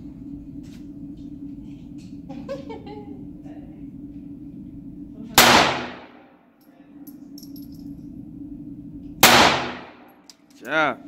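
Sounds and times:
pistol shots echoing: 0:05.4 - 0:06.2, 0:09.2 - 0:10.1.

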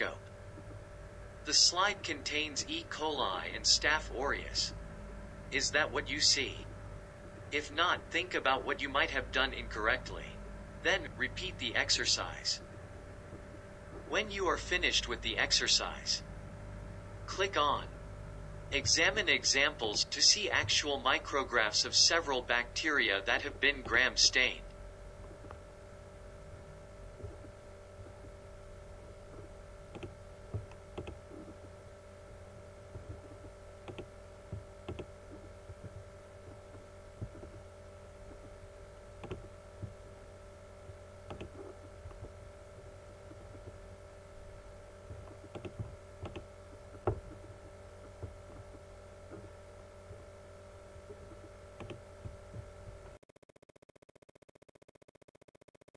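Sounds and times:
electrical hum: 0:00.0 - 0:54.3
computer mouse clicks: 0:29.9 - 0:31.6, 0:33.1 - 0:34.1, 0:34.9 - 0:35.1, 0:41.3 - 0:42.2, 0:45.2 - 0:46.4, 0:51.3 - 0:52.0.

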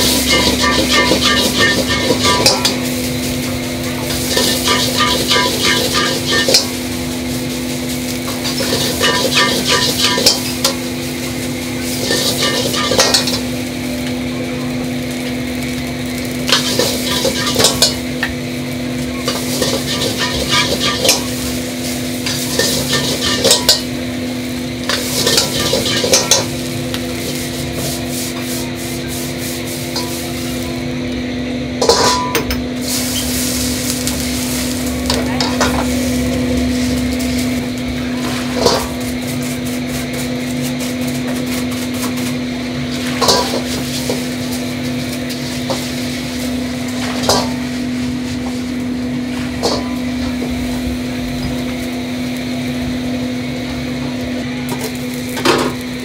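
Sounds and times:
metal ladle scraping a wok: 0:00.0 - 0:03.0, 0:04.1 - 0:06.9, 0:07.5 - 0:10.9, 0:11.9 - 0:13.5, 0:16.5 - 0:18.1, 0:19.2 - 0:23.9, 0:24.8 - 0:26.5, 0:27.2 - 0:30.6, 0:31.8 - 0:33.8, 0:42.9 - 0:47.7
food sizzling: 0:00.0 - 0:56.0
steady hum: 0:00.0 - 0:56.0.

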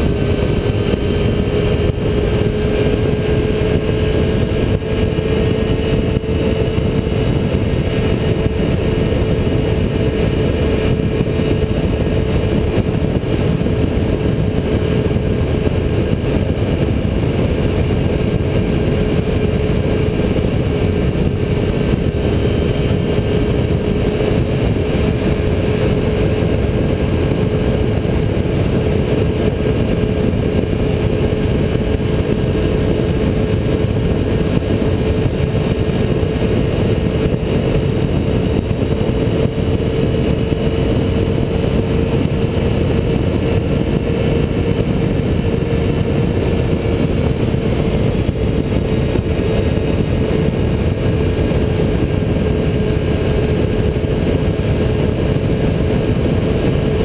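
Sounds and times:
motorcycle engine cruising: 0:00.0 - 0:57.0
wind and road rush: 0:00.0 - 0:57.0.

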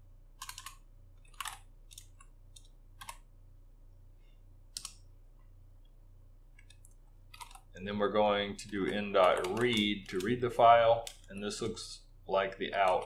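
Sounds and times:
faint low hum: 0:00.0 - 0:13.0
keyboard keystrokes: 0:00.4 - 0:03.2, 0:04.7 - 0:05.0, 0:06.6 - 0:07.7, 0:08.6 - 0:10.4.

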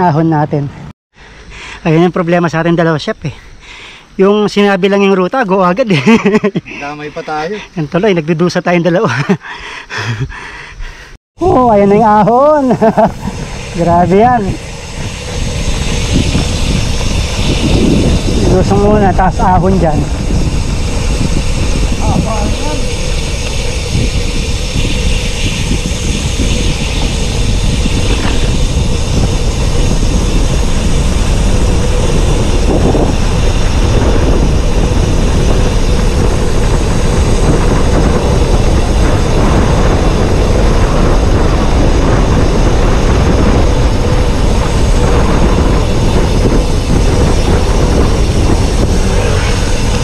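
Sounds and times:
wind buffeting microphone: 0:10.0 - 0:50.0.

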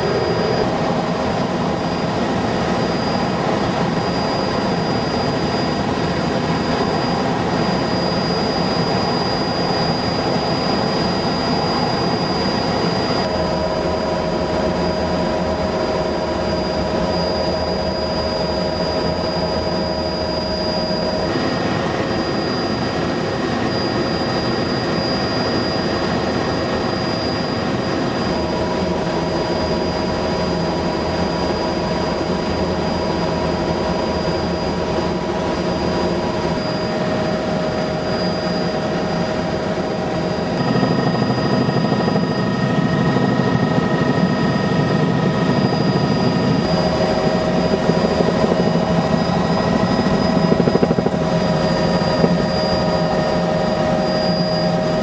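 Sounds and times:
helicopter engine and rotor noise: 0:00.0 - 0:55.0.

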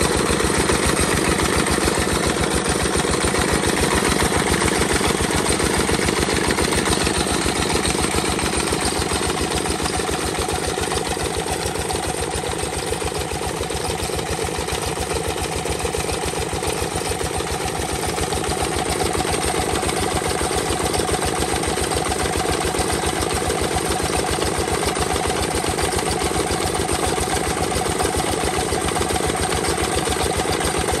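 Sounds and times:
diesel engine running: 0:00.0 - 0:12.2.

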